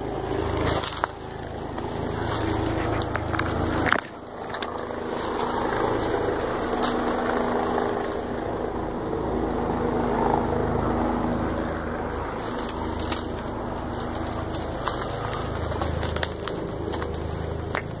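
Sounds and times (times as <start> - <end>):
helicopter droning: 0.0 - 18.0
sharp crackles and snaps: 11.0 - 18.0.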